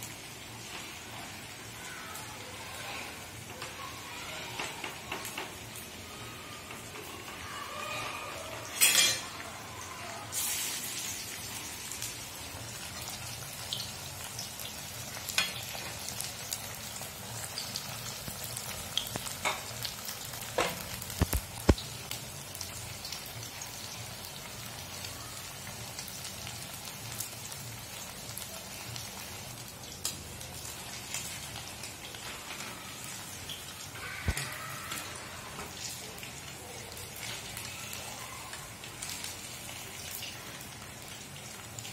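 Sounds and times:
oil popping and crackling: 0.0s - 9.5s, 10.3s - 41.9s
fish deep-frying in hot oil: 0.0s - 41.9s.

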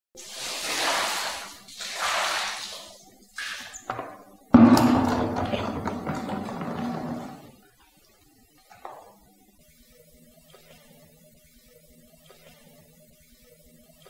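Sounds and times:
water sloshing on tiled floor: 0.2s - 4.0s, 4.9s - 7.5s.

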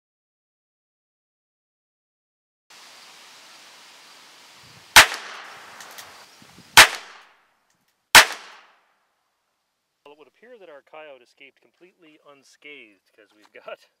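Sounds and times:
revolver shots: 5.0s - 5.9s, 6.8s - 7.2s, 8.2s - 8.6s.

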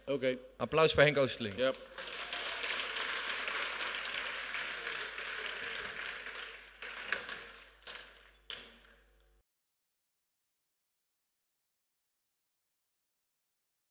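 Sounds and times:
audience applauding: 1.4s - 8.9s.

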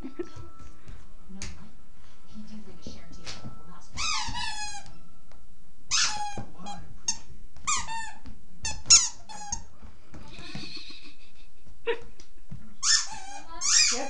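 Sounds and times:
squeaky dog toy squeaking: 3.9s - 5.0s, 5.9s - 6.5s, 7.1s - 9.7s, 12.8s - 14.0s.

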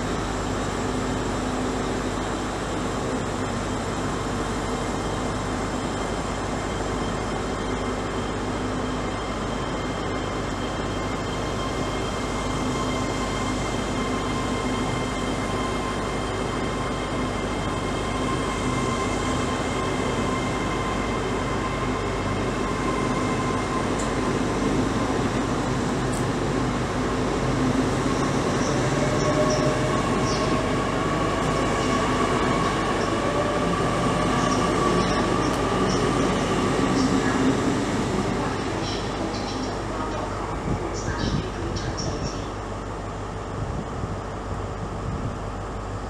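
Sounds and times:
electric train whining: 0.0s - 46.0s
train wheels rumbling: 6.6s - 42.7s.

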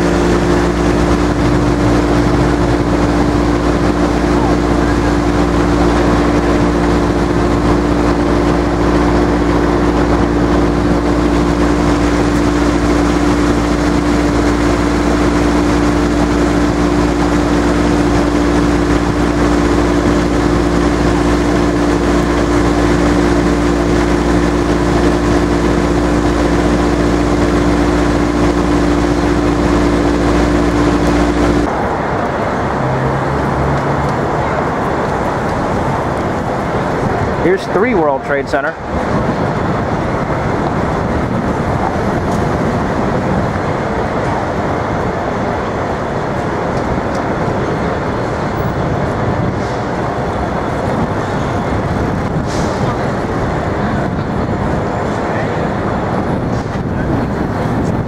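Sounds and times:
large engine droning: 0.0s - 58.0s
street noise: 0.0s - 58.0s.

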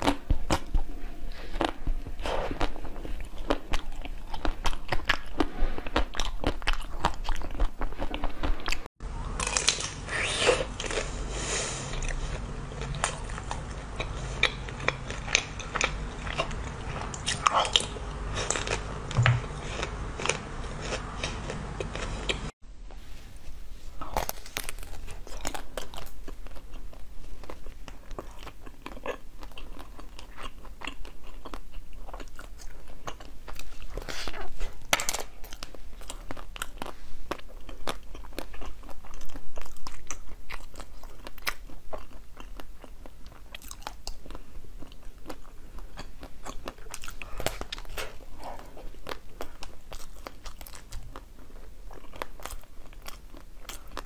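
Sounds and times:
chewing crushed ice: 24.0s - 54.0s.

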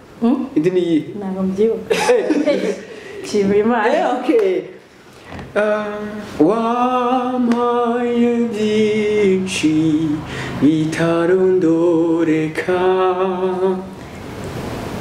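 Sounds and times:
man and woman singing together: 5.3s - 14.0s.

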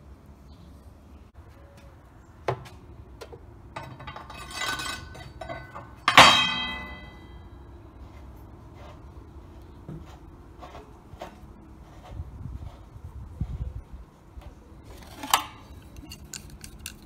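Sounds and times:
metal scraping and rattling: 3.7s - 9.2s, 14.8s - 17.0s
loud metallic clank ringing: 3.8s - 7.5s.

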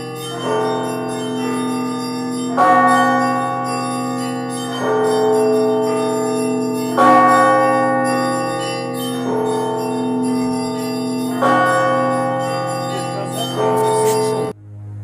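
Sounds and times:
bell-like chords: 0.0s - 14.6s
sustained low drone: 13.8s - 15.0s.

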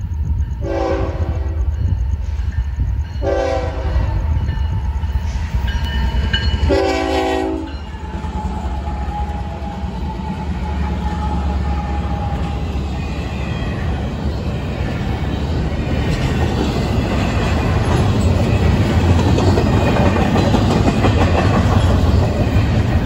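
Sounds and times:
diesel locomotive rumble: 0.0s - 23.0s
train wheels on rails: 0.0s - 23.0s
locomotive horn blasts: 0.6s - 1.4s, 3.2s - 3.9s, 6.7s - 7.7s.

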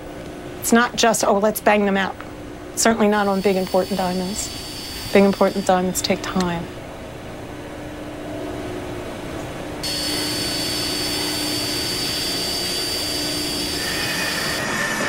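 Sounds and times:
polishing wheel humming: 2.8s - 6.8s, 9.8s - 15.0s
hiss with high whistle: 3.2s - 5.8s, 9.8s - 15.0s.

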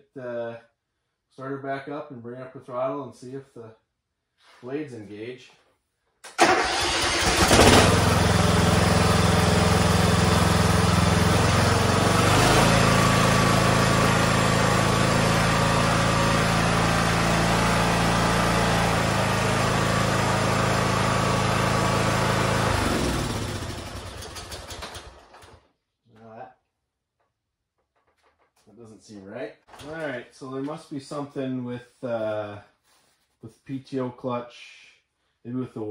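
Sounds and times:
mower engine running: 6.4s - 25.5s.

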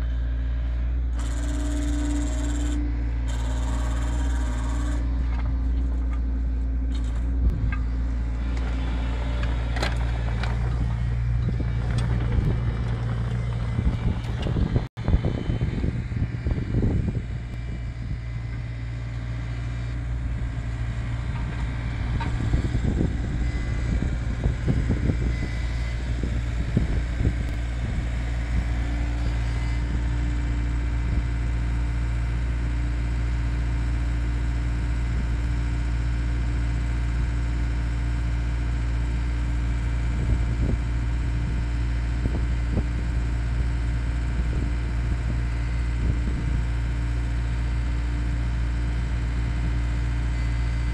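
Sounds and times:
diesel engine running: 0.0s - 50.9s
auger boring into soil: 1.1s - 6.3s.

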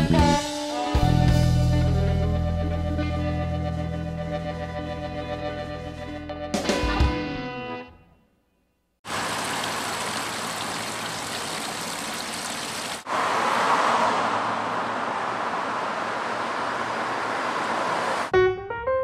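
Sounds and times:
fountain water falling into basin: 9.1s - 13.1s
street traffic: 9.1s - 18.3s.

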